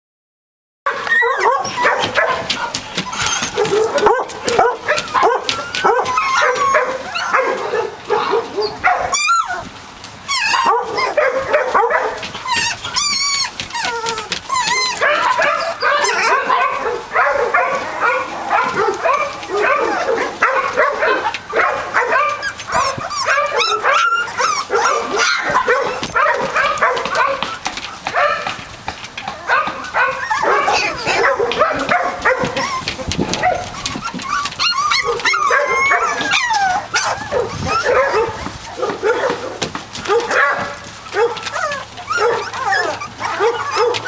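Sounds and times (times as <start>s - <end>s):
puppies crying: 0.9s - 44.0s.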